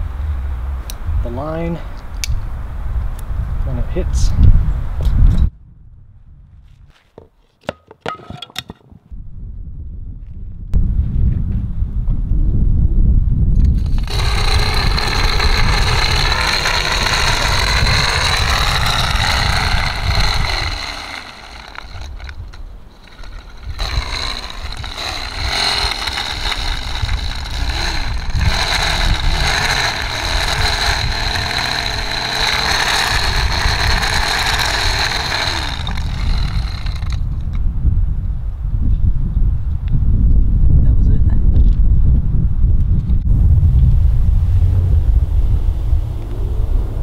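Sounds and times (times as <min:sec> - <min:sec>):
wind rumble on microphone: 0:00.0 - 0:07.0, 0:08.8 - 0:47.0
fishing line whirring off spool: 0:13.6 - 0:37.5.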